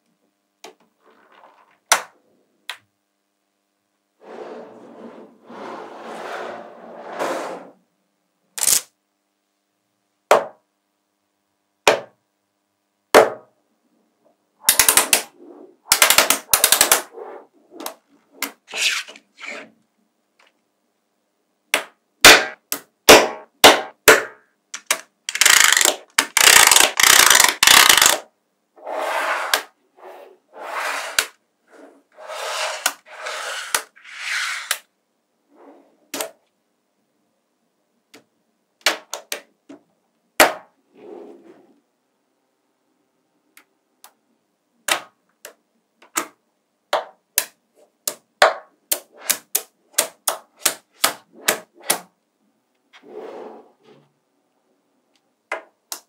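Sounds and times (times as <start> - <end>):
magnetic balls clicking together: 14.6 - 15.3, 15.9 - 17.1, 24.7 - 28.2.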